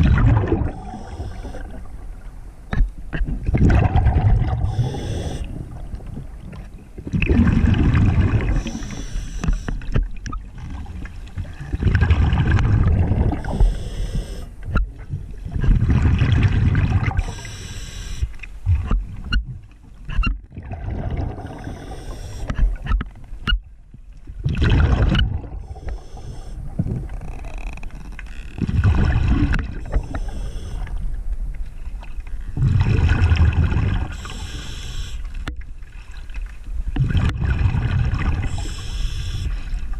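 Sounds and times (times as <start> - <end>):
exhaled bubbles rushing: 0.0 - 1.8, 3.4 - 8.9, 10.6 - 13.6, 15.5 - 17.3, 20.5 - 21.9, 24.4 - 25.7, 28.6 - 30.0, 32.6 - 34.2, 37.0 - 38.6
diver inhaling through regulator: 0.6 - 2.0, 4.5 - 5.8, 8.4 - 9.9, 13.2 - 14.6, 17.2 - 18.4, 21.2 - 22.6, 25.5 - 26.8, 29.7 - 31.0, 34.0 - 35.4, 38.4 - 39.9.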